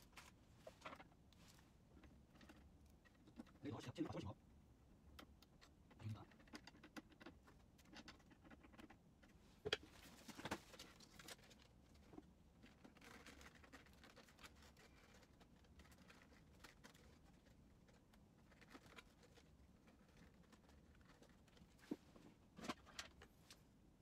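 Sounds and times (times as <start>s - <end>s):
plastic parts clicking and rustling: 5.1s - 23.6s.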